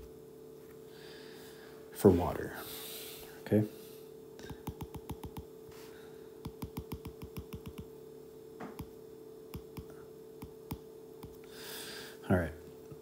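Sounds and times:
faint steady hum: 0.0 - 13.0
stylus tapping on glass screen: 4.4 - 5.5, 6.4 - 7.9.

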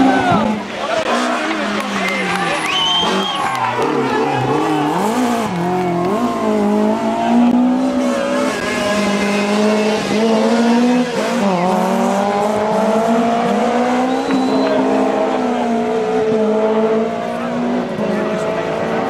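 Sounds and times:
rally car engine accelerating hard: 0.0 - 19.0.

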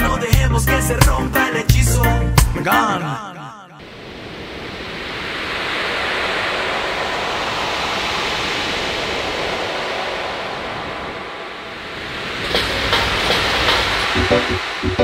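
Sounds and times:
waves breaking: 3.8 - 15.0.

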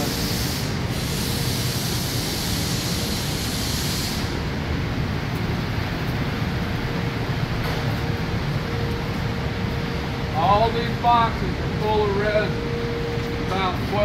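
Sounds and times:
high hiss: 0.0 - 4.4
faint steady hum: 0.0 - 14.0
fans and machinery din: 0.0 - 14.0.

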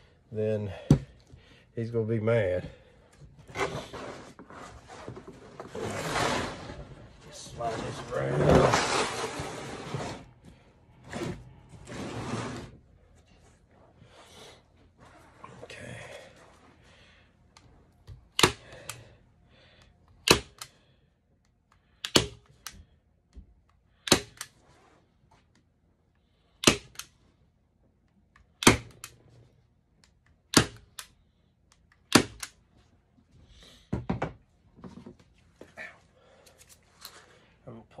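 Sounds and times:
staple gun snapping: 22.0 - 22.8, 24.0 - 24.5, 26.6 - 27.1, 28.6 - 29.2, 32.0 - 32.6.

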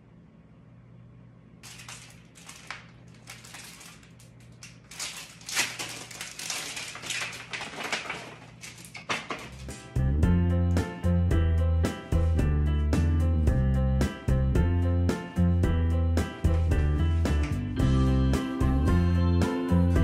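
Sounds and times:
faint electrical hum: 0.0 - 19.1
clothes rustling and crinkling: 1.6 - 10.0.

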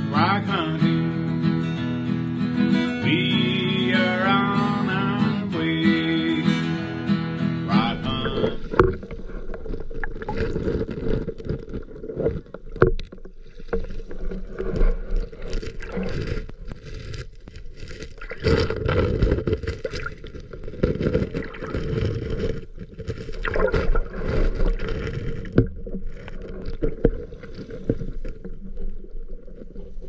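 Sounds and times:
underwater water surging over pebbles: 7.8 - 30.0.

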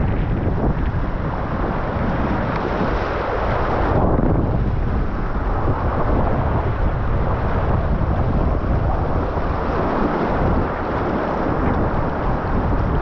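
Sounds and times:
rapids rushing and splashing: 0.0 - 13.0
wind buffeting microphone: 0.0 - 13.0.

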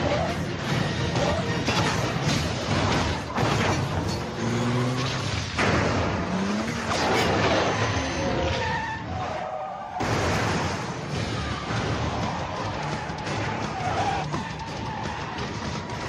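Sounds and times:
car engine revving: 0.0 - 9.1
tyres skidding: 0.0 - 16.0
crashes and explosions booming: 0.3 - 8.5, 9.9 - 16.0.

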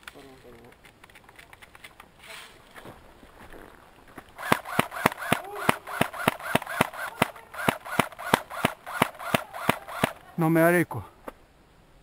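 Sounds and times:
airsoft gun firing rapid shots: 4.4 - 10.2.

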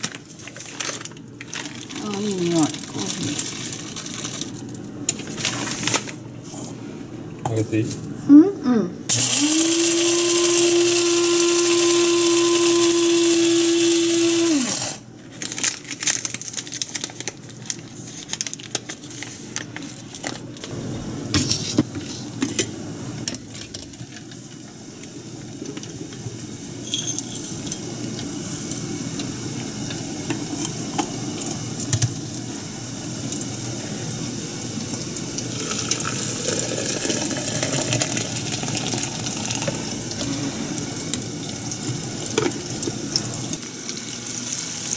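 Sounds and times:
electric coffee grinder whining: 9.1 - 15.0, 35.5 - 40.3.

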